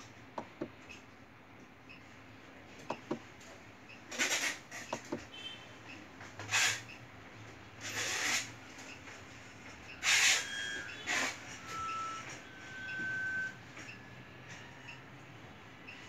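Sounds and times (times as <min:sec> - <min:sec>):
faint electronic beeps: 0:10.4 - 0:15.1.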